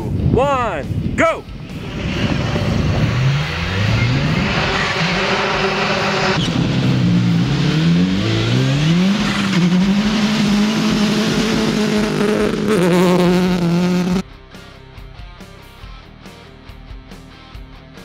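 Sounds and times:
rally cars accelerating hard: 0:01.6 - 0:14.2.

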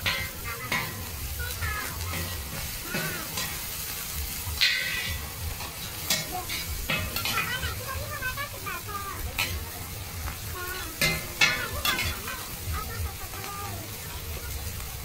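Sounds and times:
metal spatulas scraping and clacking: 0:00.0 - 0:08.0, 0:09.3 - 0:09.8, 0:10.7 - 0:12.4
food sizzling on griddle: 0:00.0 - 0:15.0.

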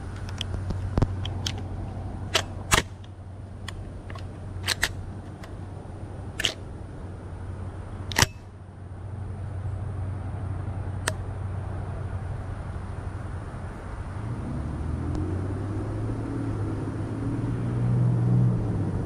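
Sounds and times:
steady low hum: 0:00.0 - 0:17.7
shells clicking into shotgun: 0:03.7 - 0:05.5, 0:06.4 - 0:06.6, 0:08.1 - 0:08.4.

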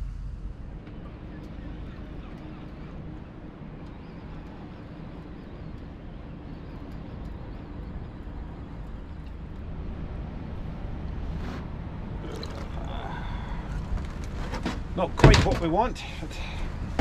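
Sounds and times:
boat engine droning: 0:00.0 - 0:17.0
noisy rustle: 0:09.8 - 0:12.8, 0:13.7 - 0:15.7.

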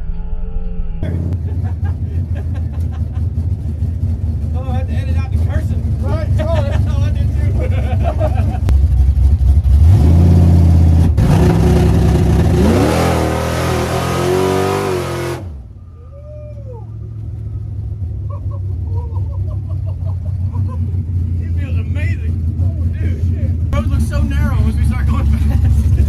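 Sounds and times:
drag car engine revving high: 0:01.0 - 0:15.8
quieter engine running: 0:01.0 - 0:26.0.

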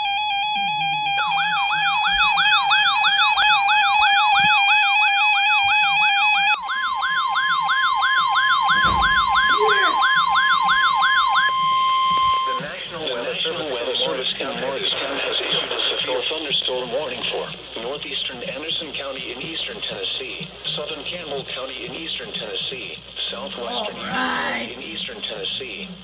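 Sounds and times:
warbling siren: 0:00.0 - 0:12.7
steady electronic alarm tone: 0:00.0 - 0:12.8.

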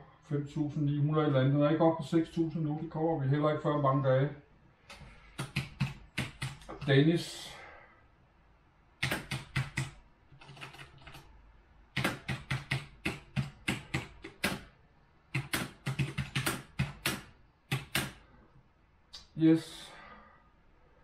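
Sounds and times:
keyboard typing clicks: 0:04.9 - 0:06.9, 0:09.0 - 0:11.3, 0:12.0 - 0:14.7, 0:15.3 - 0:18.2.

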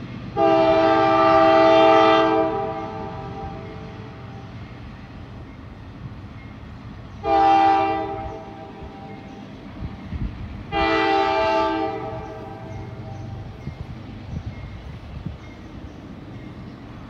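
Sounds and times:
locomotive air horn blasts: 0:00.3 - 0:04.4, 0:07.2 - 0:09.1, 0:10.7 - 0:13.1.

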